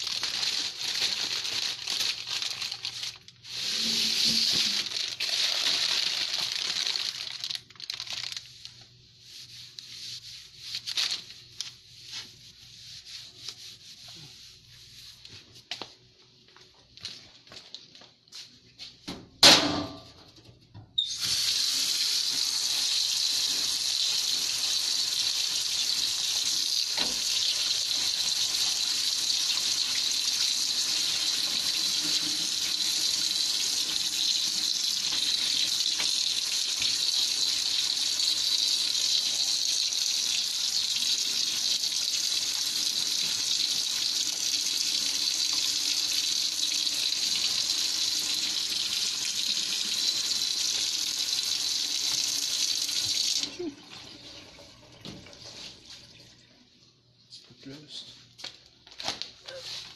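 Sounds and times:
tap water running into sink: 3.6 - 5.9, 21.1 - 56.4.

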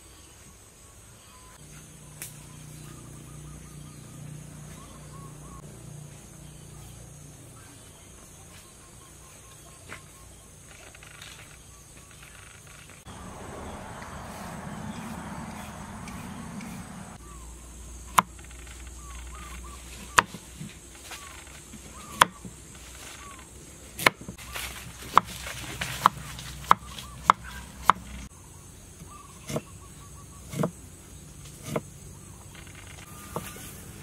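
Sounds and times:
cleaver chopping on wooden board: 20.2 - 20.4, 22.1 - 22.5, 24.0 - 24.4, 25.0 - 28.2, 29.4 - 29.7, 30.5 - 30.7, 31.6 - 31.9.

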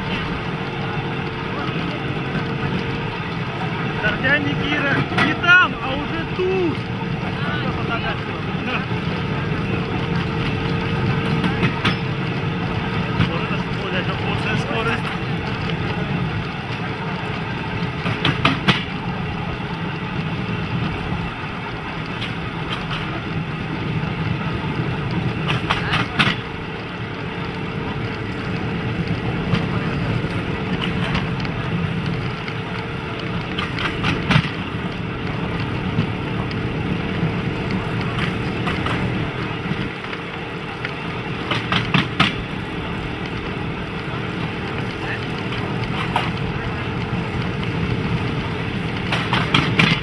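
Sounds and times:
rail trolley engine running: 0.0 - 50.0
wheels clacking over rail joints: 0.0 - 50.0.

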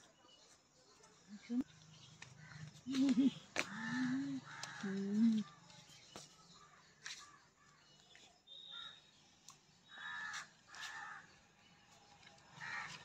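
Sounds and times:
crow cawing: 3.7 - 5.0, 9.9 - 11.3, 12.6 - 13.0.

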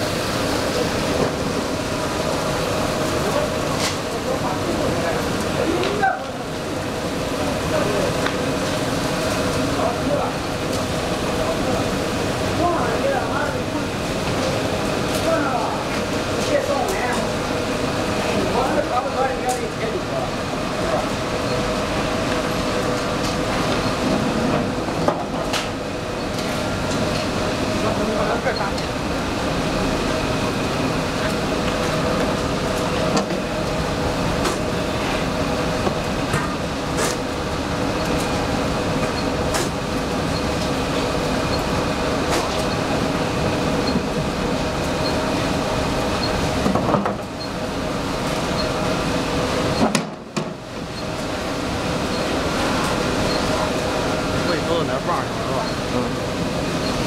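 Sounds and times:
machinery hum and rumble: 0.0 - 57.0.

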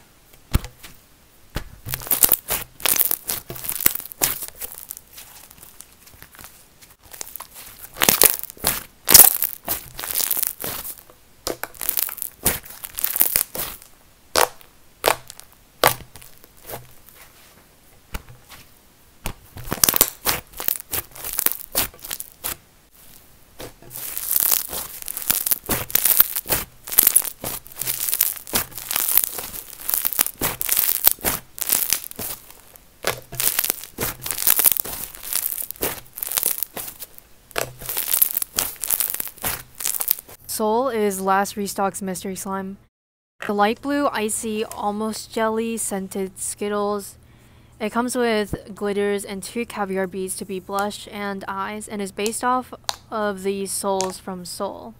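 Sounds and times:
slime squeezed clicking and crackling: 1.9 - 5.8, 7.0 - 16.8, 19.6 - 22.6, 24.0 - 40.4.

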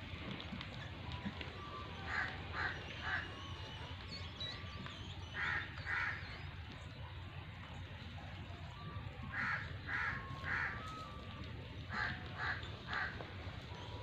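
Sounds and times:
crow cawing: 2.1 - 3.2, 5.4 - 6.2, 9.3 - 10.9, 11.9 - 13.2.

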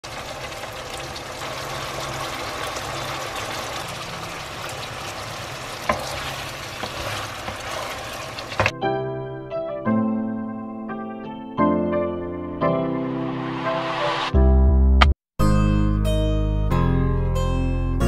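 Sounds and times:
food sizzling in a pan: 0.0 - 8.7.

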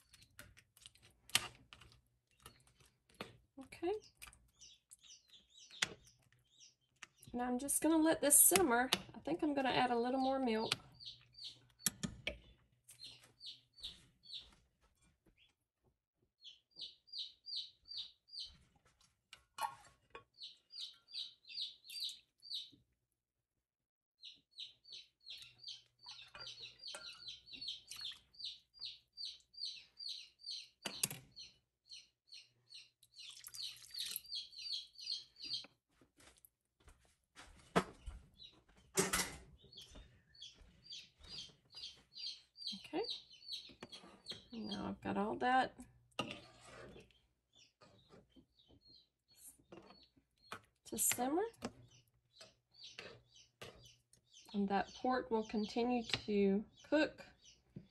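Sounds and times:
bird chirping: 4.0 - 7.5, 9.4 - 14.6, 16.4 - 18.6, 19.6 - 22.8, 24.2 - 35.8, 39.6 - 45.6, 47.0 - 57.9.

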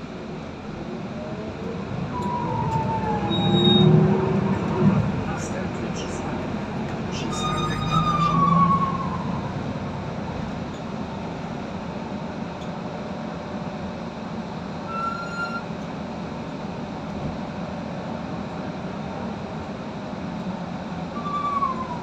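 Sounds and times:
bus engine and road noise: 0.0 - 22.0
short high beep: 3.3 - 4.0.

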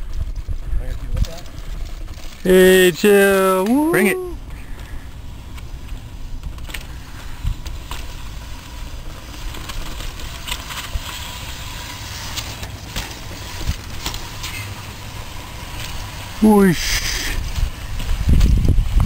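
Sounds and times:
wind buffeting microphone: 17.3 - 19.0.

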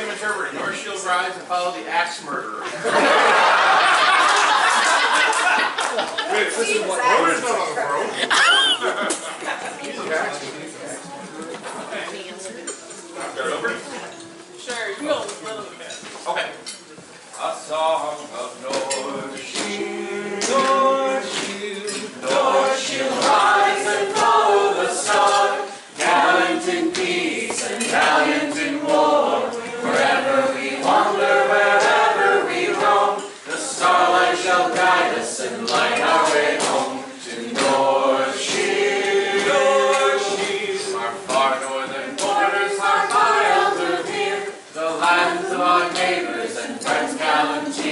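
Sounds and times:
person singing unaccompanied: 18.6 - 47.9.

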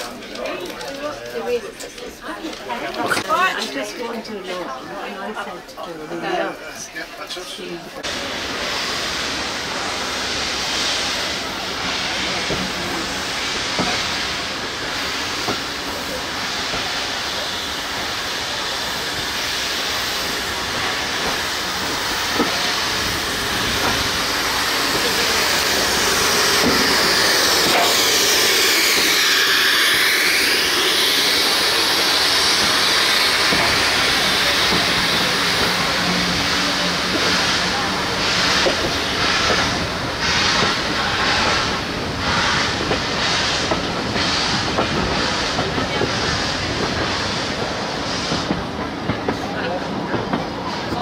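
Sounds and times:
steam locomotive hissing steam: 7.1 - 51.0.

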